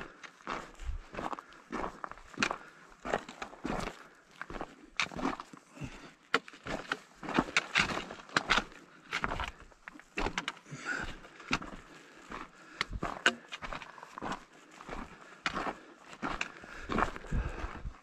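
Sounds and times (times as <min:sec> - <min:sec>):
boots crunching on gravel: 0:00.0 - 0:18.0.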